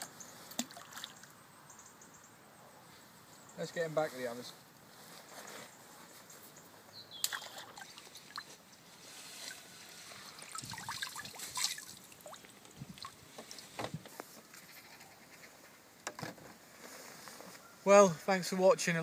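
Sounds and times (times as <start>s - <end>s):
water trickling and sloshing: 0.5s - 1.4s, 7.2s - 14.0s
fish splashing in water: 10.2s - 13.6s.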